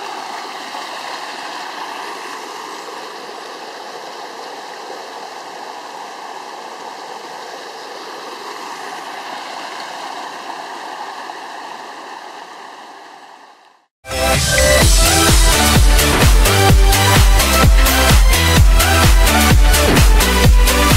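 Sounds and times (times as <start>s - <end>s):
stream water rushing: 0.0s - 13.8s, 14.5s - 20.9s
music: 14.0s - 20.9s.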